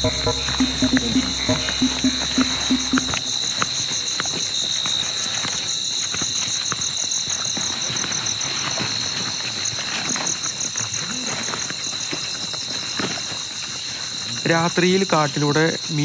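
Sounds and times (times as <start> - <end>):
crickets and insects chirping: 0.0 - 16.0.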